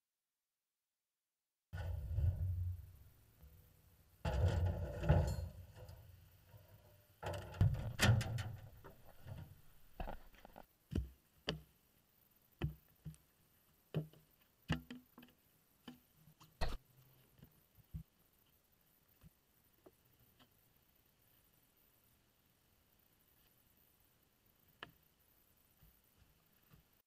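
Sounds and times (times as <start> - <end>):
board scraping on metal bed: 1.8 - 3.1, 4.3 - 6.1
knocks and taps of wood: 12.6 - 13.2.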